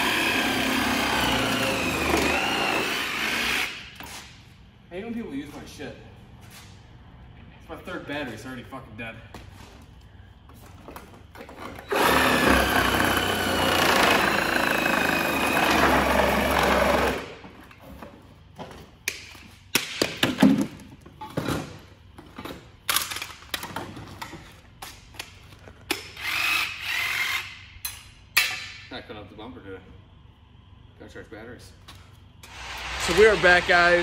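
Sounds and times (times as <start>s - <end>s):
cordless power tool running: 0.0s - 3.8s, 11.9s - 17.3s, 32.5s - 34.0s.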